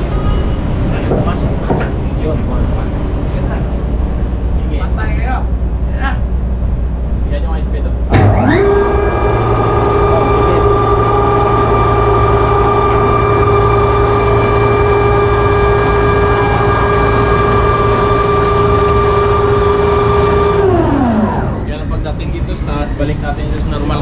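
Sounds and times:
electric winch motor whining: 0.0s - 0.6s, 8.1s - 24.0s.

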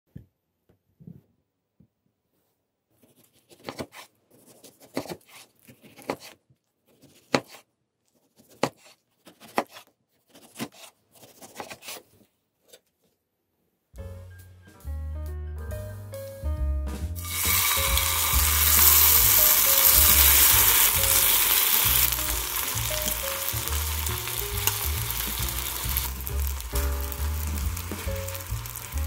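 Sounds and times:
background music: 14.0s - 29.0s.

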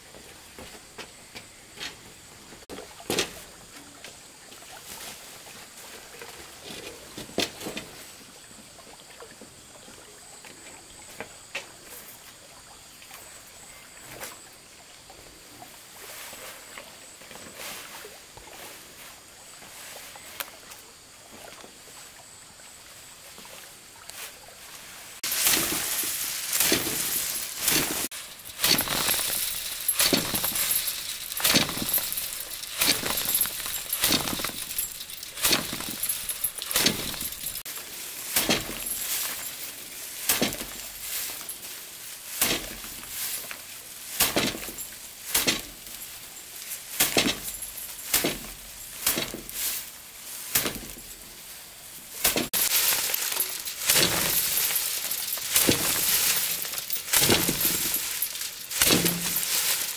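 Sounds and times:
grain rattling: 25.2s - 39.6s, 52.2s - 59.9s
rice bundles striking hard surface: 25.2s - 39.6s, 40.2s - 41.6s, 42.3s - 46.0s, 46.9s - 49.8s, 50.4s - 51.1s, 52.2s - 59.9s.

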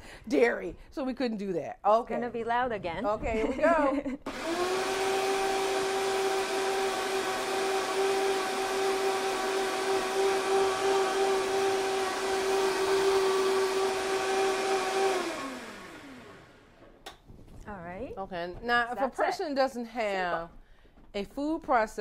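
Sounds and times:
blender motor whining: 4.3s - 16.8s.

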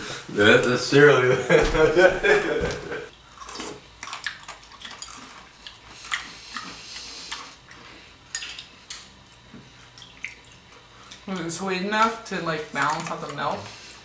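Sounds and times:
crunchy chewing: 3.2s - 11.3s.

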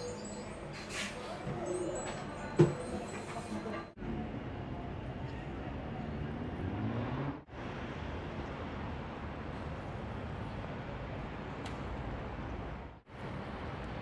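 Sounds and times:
crowd hubbub: 0.0s - 4.2s
traffic: 0.0s - 14.0s.

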